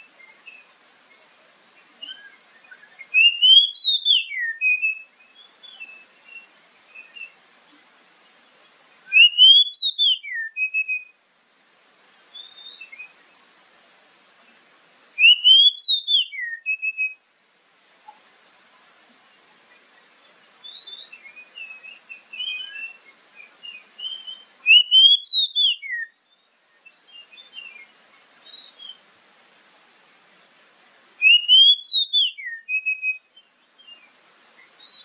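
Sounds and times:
bird whistled song: 0.0 - 0.7, 2.0 - 7.4, 9.0 - 11.2, 12.3 - 13.3, 15.2 - 17.2, 19.7 - 29.0, 31.2 - 35.0.

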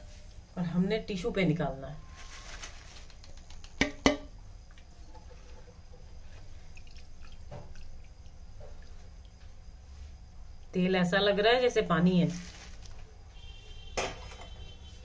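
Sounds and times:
chips rustling onto paper: 2.1 - 3.4, 12.2 - 13.1
oil dripping and sizzling: 4.0 - 10.7.

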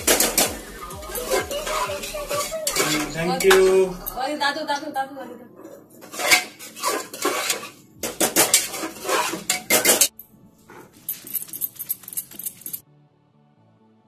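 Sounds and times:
metal spoon scraping a pot: 1.3 - 4.2, 6.0 - 10.1
stone roller rasping on stone: 6.0 - 10.0.

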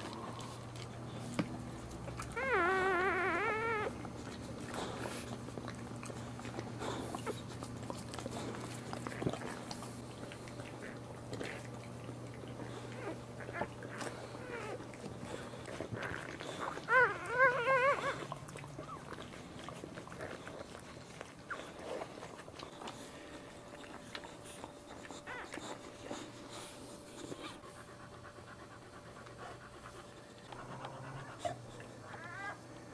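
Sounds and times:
dog licking and panting: 0.0 - 32.9
puppies squealing: 2.3 - 4.0, 16.0 - 19.1.

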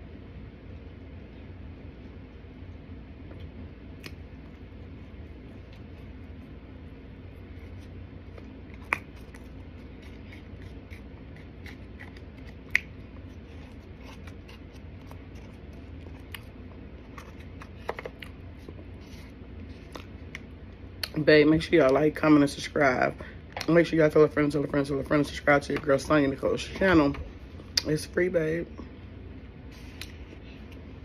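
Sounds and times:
steady low hum: 0.0 - 31.0
starch being chewed: 7.6 - 16.5.

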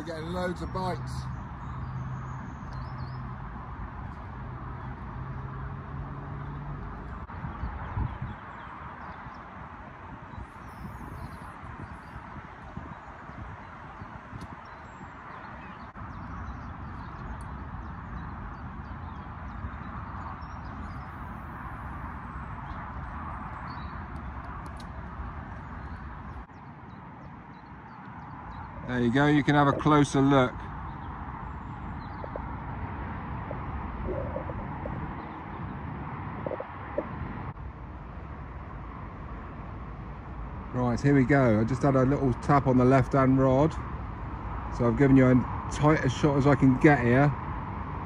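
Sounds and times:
outdoor background noise: 0.0 - 48.0
wind rumbling on microphone: 0.0 - 48.0
faint bird chirp: 10.3 - 12.3, 25.6 - 32.6, 33.4 - 35.8.

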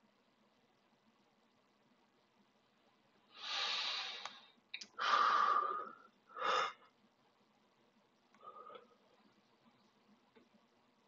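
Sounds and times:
person breathing: 3.3 - 6.9, 8.3 - 9.2.

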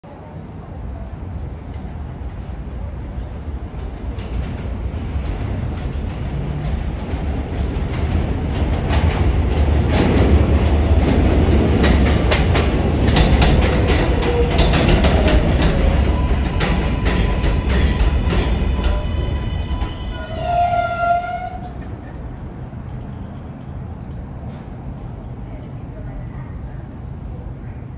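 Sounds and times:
subway train on elevated track: 0.0 - 27.9
wheels clicking over rail joints: 4.0 - 22.2.

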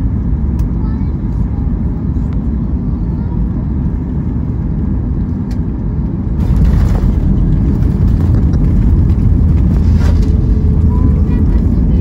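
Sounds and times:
jet engine cabin rumble: 0.0 - 12.0
airflow rushing: 6.2 - 12.0.

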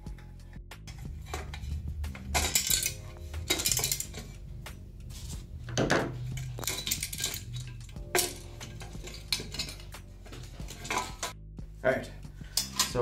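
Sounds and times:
glass and metal clinks: 0.9 - 4.4, 5.9 - 11.3, 12.6 - 13.0.

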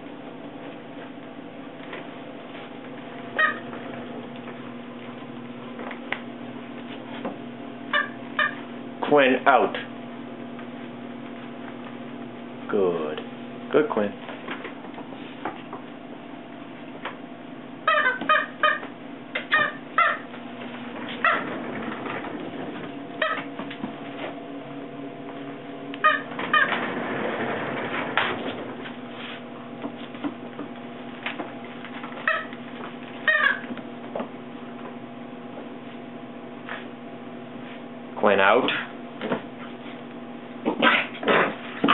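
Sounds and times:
puppies yipping and squealing: 3.3 - 3.8, 17.9 - 20.4, 33.3 - 33.7.

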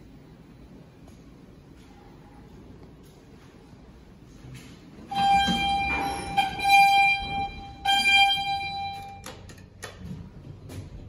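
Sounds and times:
electronic buzzer tone: 5.1 - 9.3.

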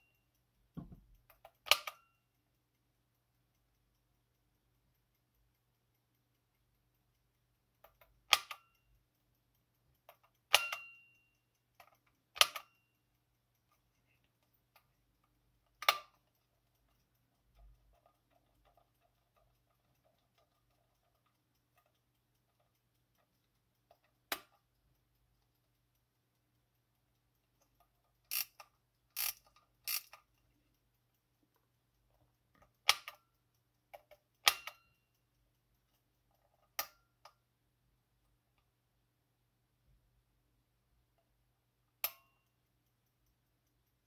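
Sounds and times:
clock mechanism clicking: 0.0 - 44.0.

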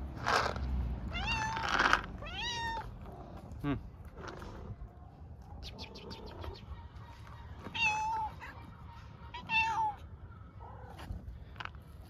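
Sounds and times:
cat meowing: 1.1 - 3.0, 7.7 - 8.5, 9.3 - 10.1.

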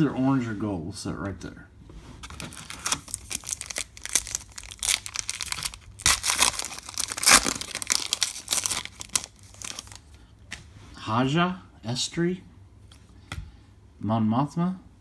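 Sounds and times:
foil wrapper tearing and crinkling: 2.4 - 10.1.

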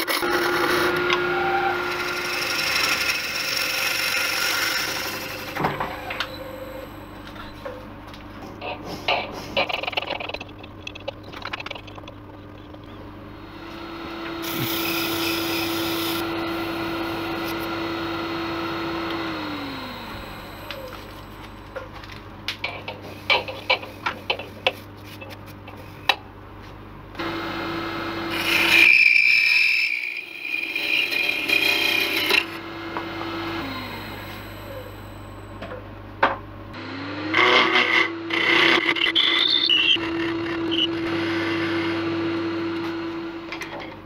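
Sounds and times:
wood lathe motor hum: 0.0 - 7.4, 13.2 - 21.7, 27.2 - 35.6, 36.8 - 43.6
hissing cut on wood: 13.4 - 20.9.

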